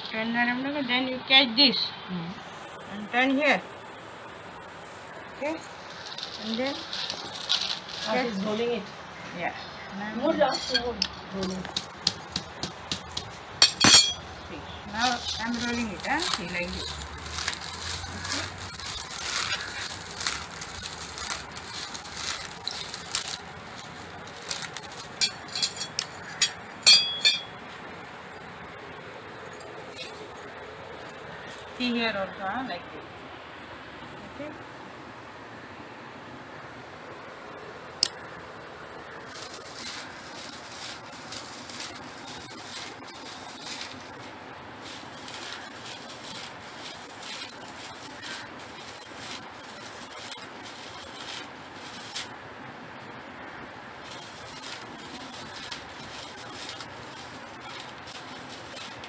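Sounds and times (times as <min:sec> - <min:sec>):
dry leaf ribs rustling and crackling: 0:02.5 - 0:32.8, 0:38.0 - 0:59.0
rope rasping: 0:15.0 - 0:27.6, 0:39.4 - 0:52.4, 0:54.0 - 0:59.0.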